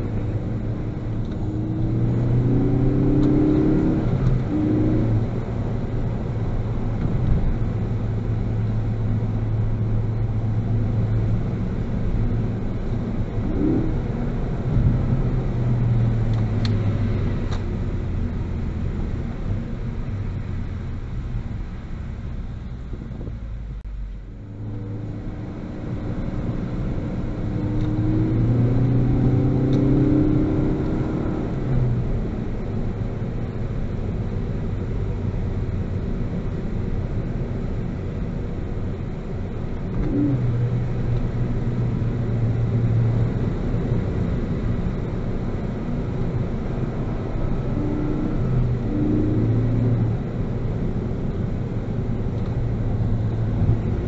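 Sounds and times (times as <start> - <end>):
car engine accelerating: 0.0 - 54.0
tyre and road noise: 0.0 - 54.0.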